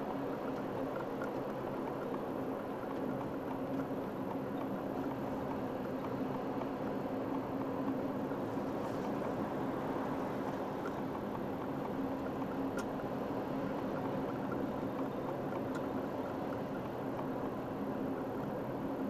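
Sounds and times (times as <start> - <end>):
car engine and tyre noise: 0.0 - 19.0
faint ticks: 0.0 - 19.0.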